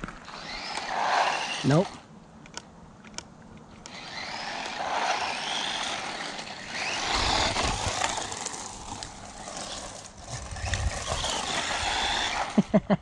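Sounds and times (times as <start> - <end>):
rc truck motor whine: 0.0 - 2.0, 3.8 - 12.7
tyre noise on ground: 3.9 - 12.6.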